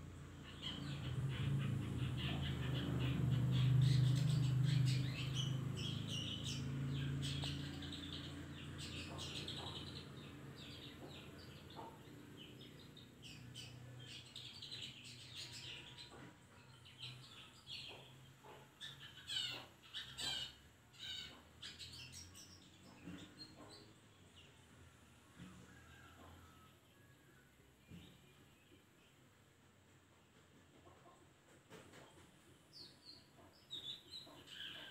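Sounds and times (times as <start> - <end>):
bird chattering song: 0.2 - 24.6, 32.7 - 34.9.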